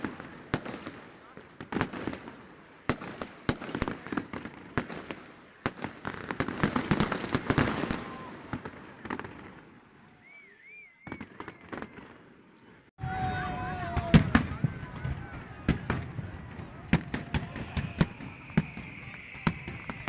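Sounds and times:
fireworks bangs and crackling: 0.0 - 20.0
warbling firework whistle: 10.1 - 20.0.

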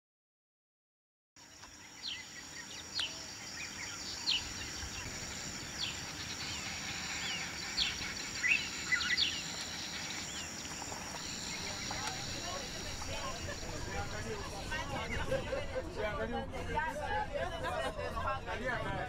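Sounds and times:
bird chirping: 1.4 - 14.2
high insect drone: 1.4 - 15.3.

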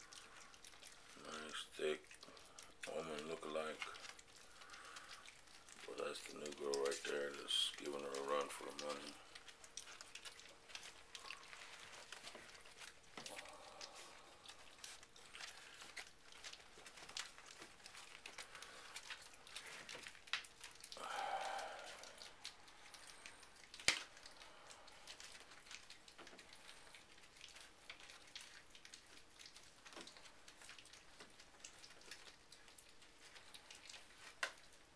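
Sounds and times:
paper crinkling: 0.0 - 21.0
puppies lapping and chewing: 0.0 - 34.9.

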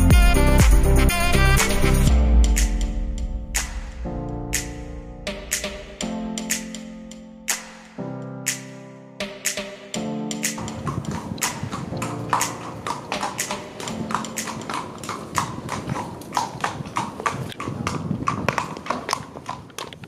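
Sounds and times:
horse hooves on cobblestones: 10.3 - 20.0.

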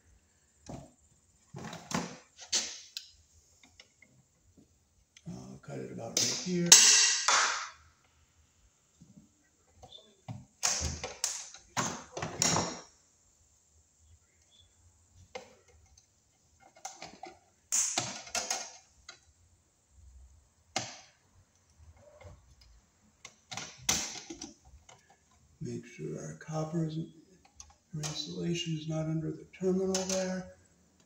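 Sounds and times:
wire snapping: 6.2 - 7.8.

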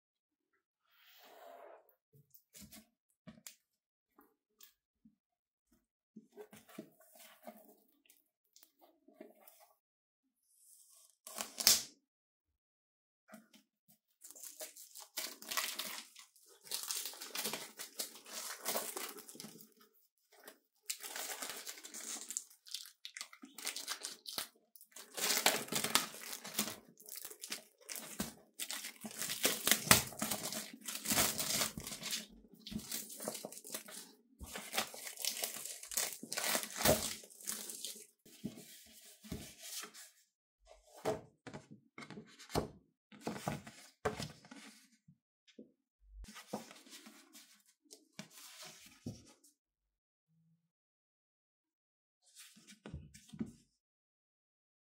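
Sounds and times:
packaging tearing and crinkling: 20.9 - 34.0, 34.6 - 38.0.

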